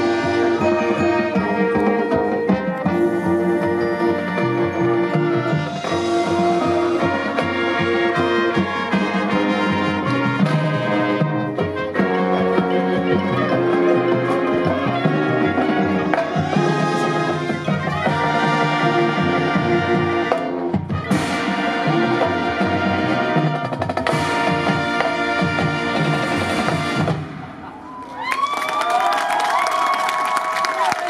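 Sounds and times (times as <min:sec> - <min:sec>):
marching band playing: 0:00.0 - 0:27.9
crowd cheering: 0:27.5 - 0:31.0.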